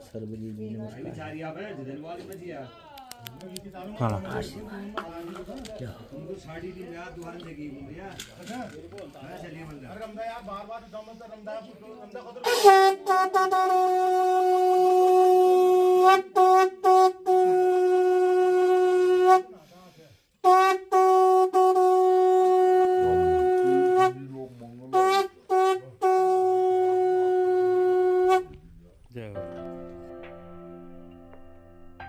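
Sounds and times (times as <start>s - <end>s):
conch shell blasts: 12.4s - 19.5s, 20.4s - 28.6s.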